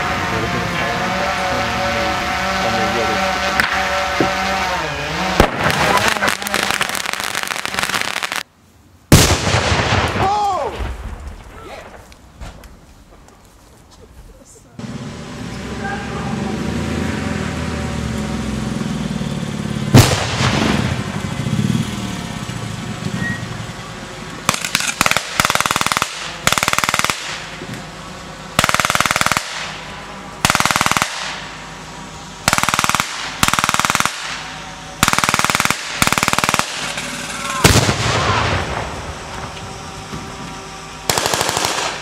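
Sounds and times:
vehicle engine running: 0.0s - 8.0s, 12.6s - 42.0s
machine-gun fire: 5.3s - 8.4s, 9.1s - 10.3s, 19.9s - 21.1s, 24.5s - 27.6s, 28.6s - 31.6s, 32.4s - 39.1s, 41.1s - 42.0s
explosion blast: 9.1s - 12.0s, 19.9s - 21.2s, 37.4s - 39.5s.

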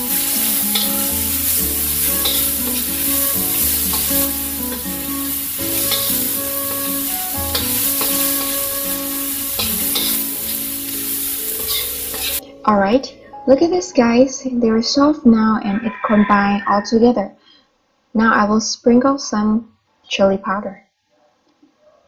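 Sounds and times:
food sizzling in hot oil: 0.0s - 12.4s
metal spatula scraping wok: 0.0s - 12.4s
background music: 0.0s - 17.0s.

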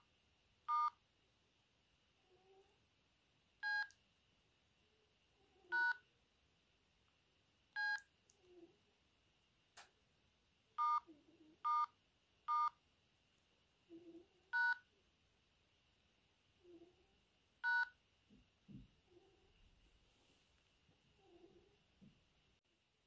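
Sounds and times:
phone keypad beeps: 10.8s - 11.0s.

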